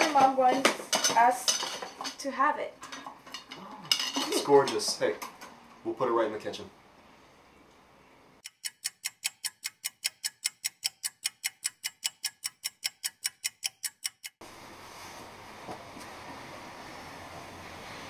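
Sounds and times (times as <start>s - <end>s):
clock ticking: 8.4s - 14.4s.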